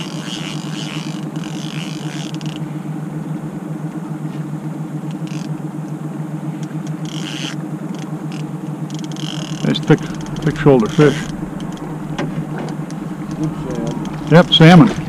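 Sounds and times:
outboard motor running: 0:00.0 - 0:15.0
hissing rush: 0:09.4 - 0:15.0.

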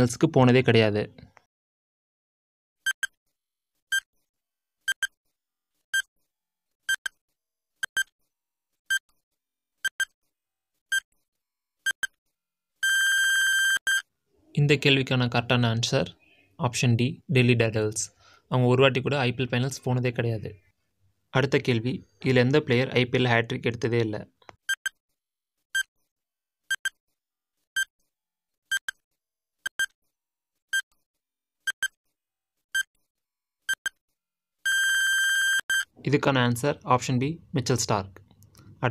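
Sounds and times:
short electronic beeps: 0:34.7 - 0:35.9.

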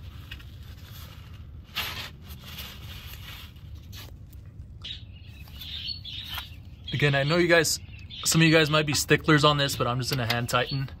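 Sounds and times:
rustling and scraping handling: 0:00.0 - 0:06.8.

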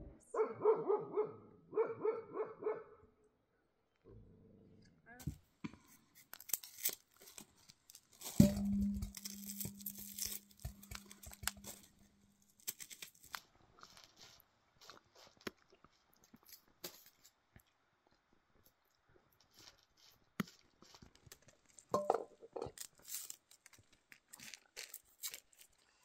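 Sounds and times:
knock on ringing metal tray: 0:08.4 - 0:11.7
raisins clicking on metal tray: 0:08.4 - 0:12.0.

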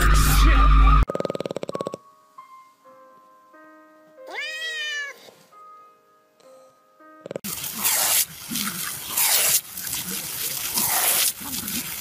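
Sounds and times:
piano-like music notes: 0:00.8 - 0:07.4
cat meowing: 0:04.3 - 0:05.3.

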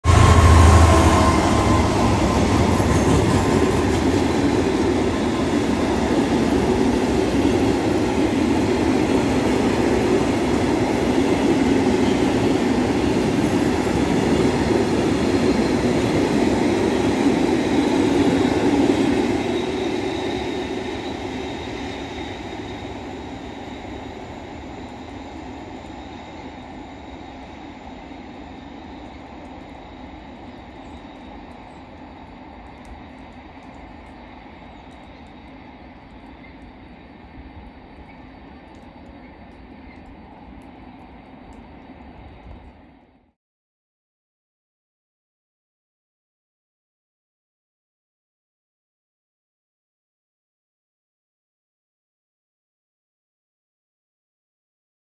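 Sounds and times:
freight train rolling past: 0:00.0 - 0:43.3.

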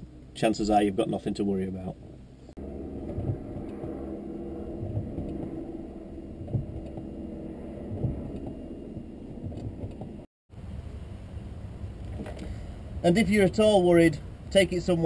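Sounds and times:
car engine idling: 0:00.0 - 0:13.6
dull thump: 0:06.4 - 0:07.1, 0:07.9 - 0:08.6.

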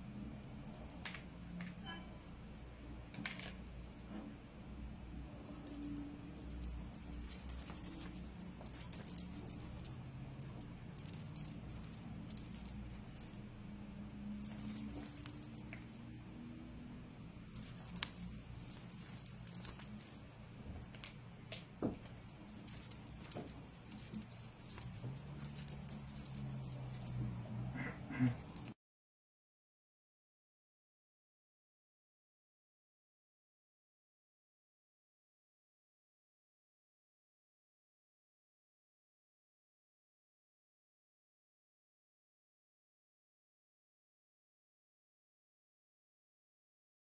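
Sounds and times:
toy rattling and jingling: 0:00.4 - 0:04.0, 0:05.5 - 0:13.4, 0:14.4 - 0:16.1, 0:17.4 - 0:28.8.

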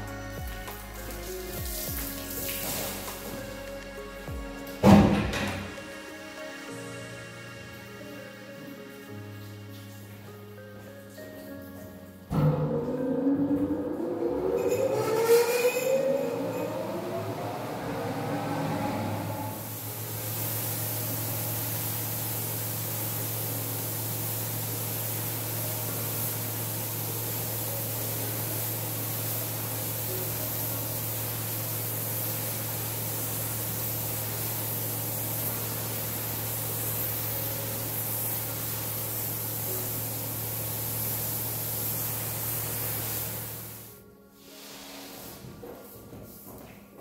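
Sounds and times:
pressure washer spraying concrete: 0:00.0 - 0:06.4, 0:19.5 - 0:43.9
low hum: 0:12.3 - 0:20.3.

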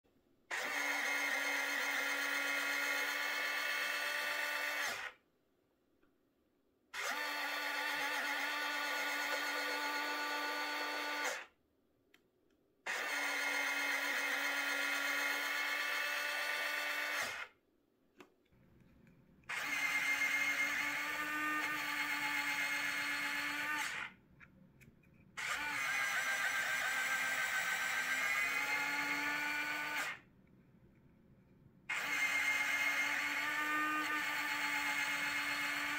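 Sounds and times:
small geared motor whining: 0:00.5 - 0:05.2, 0:07.0 - 0:11.5, 0:12.9 - 0:17.5, 0:19.5 - 0:24.2, 0:31.9 - 0:35.9.

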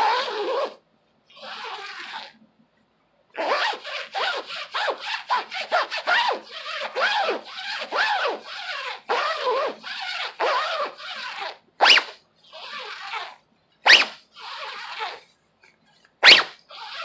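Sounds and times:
zipper run up and down: 0:00.0 - 0:00.8, 0:01.4 - 0:02.4, 0:03.4 - 0:15.3, 0:16.2 - 0:17.0.

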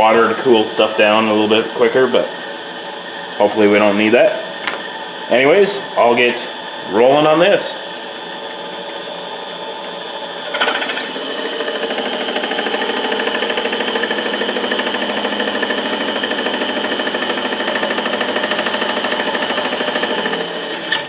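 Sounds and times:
metal lathe drilling and grinding: 0:00.0 - 0:21.0.

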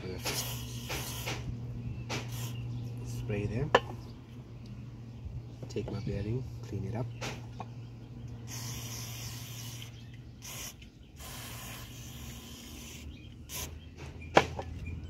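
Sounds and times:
aerosol spray hissing: 0:00.2 - 0:01.4, 0:02.2 - 0:02.6, 0:08.5 - 0:13.7.

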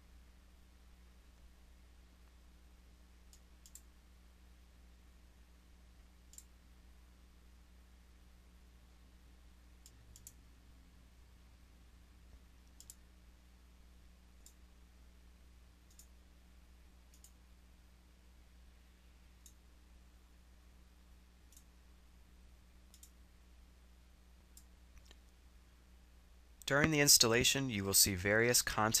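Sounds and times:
faint low hum: 0:00.0 - 0:29.0
soft sharp clicks: 0:03.3 - 0:03.9, 0:06.3 - 0:06.6, 0:09.8 - 0:10.4, 0:12.3 - 0:13.0, 0:14.4 - 0:14.6, 0:15.9 - 0:16.2, 0:17.1 - 0:17.4, 0:19.4 - 0:19.6, 0:21.5 - 0:21.7, 0:22.9 - 0:23.2, 0:24.5 - 0:25.4.

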